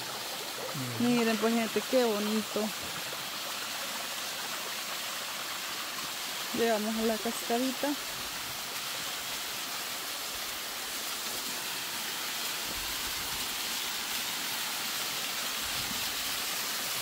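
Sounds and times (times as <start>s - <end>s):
waterfall splashing onto rocks: 0.0s - 17.0s.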